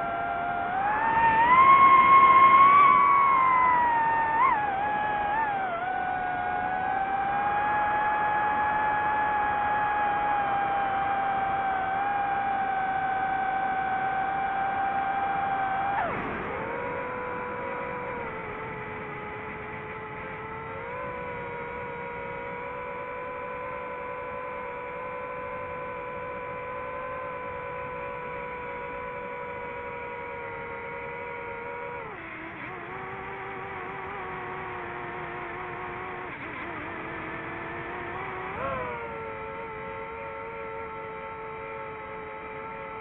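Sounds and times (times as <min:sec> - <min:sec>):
drone propellers whining: 0:00.0 - 0:43.0.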